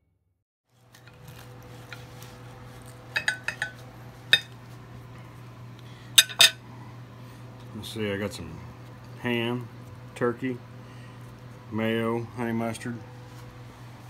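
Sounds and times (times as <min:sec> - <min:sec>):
knife clinking on ceramic plate: 0:03.2 - 0:04.6, 0:06.2 - 0:06.6.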